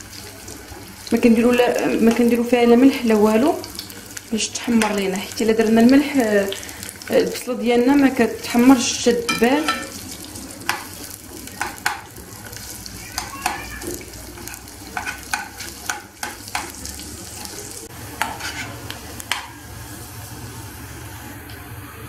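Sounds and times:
onions sizzling in oil: 0.0 - 21.6
spoon scraping a pan: 9.2 - 17.6, 18.2 - 19.5.

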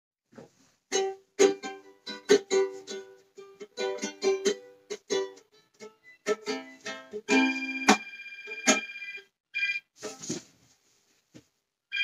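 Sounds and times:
ukulele strumming chords: 0.9 - 8.0.

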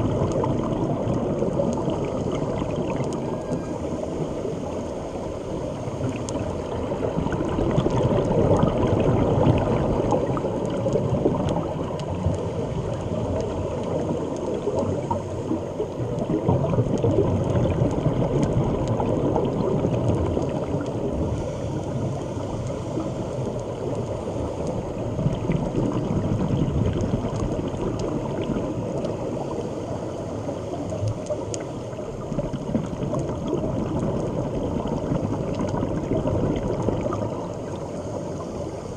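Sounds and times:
underwater rushing and bubbling: 0.0 - 38.9
faint clicks: 2.8 - 3.7, 6.0 - 6.5, 7.7 - 19.2, 21.8 - 29.6, 30.4 - 36.0.

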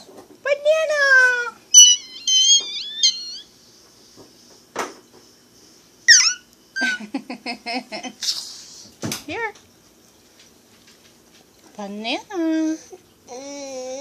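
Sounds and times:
baby squealing: 1.7 - 3.5, 6.1 - 6.9.

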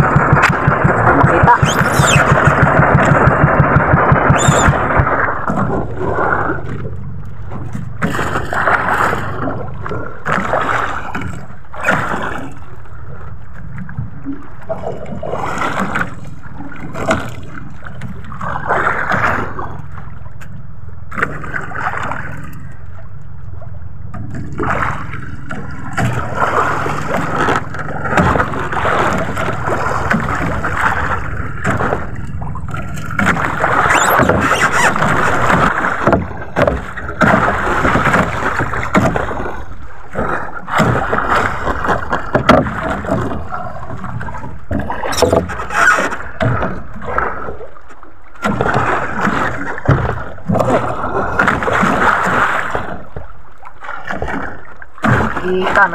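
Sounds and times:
water splashing against boat hull: 0.0 - 55.9.

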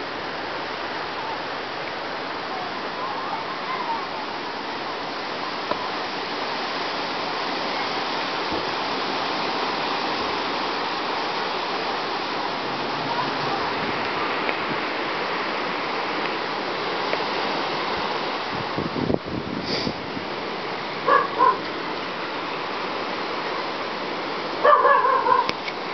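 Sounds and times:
strong wind rushing: 12.0 - 21.6.

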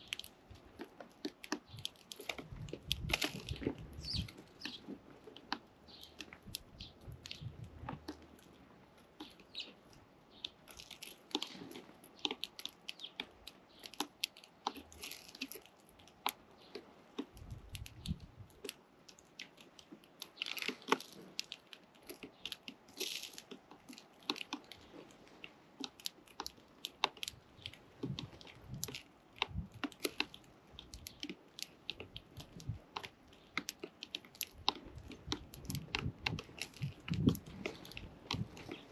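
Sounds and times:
chicks pecking at food: 0.0 - 38.9.

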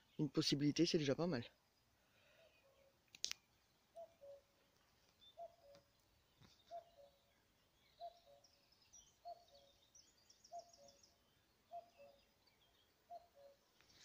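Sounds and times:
songbird chirping and trilling: 0.0 - 14.0
cuckoo calling: 3.8 - 14.0.

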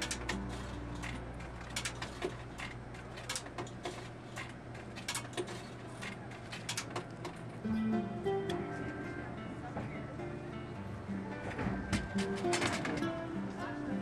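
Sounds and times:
coins clicking into vending machine: 0.0 - 7.4, 12.1 - 13.1.

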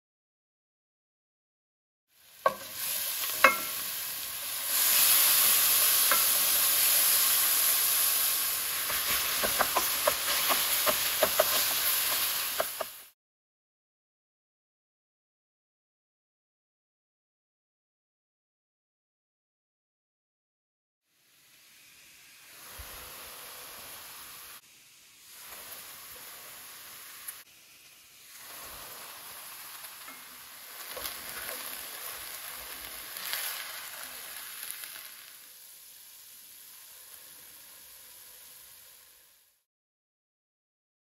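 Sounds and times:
meat sizzling in a skillet: 2.1 - 13.2, 21.1 - 39.6.

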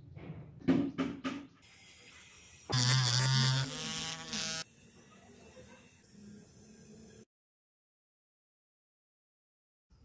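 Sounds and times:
small electric motor whining: 1.7 - 6.1.

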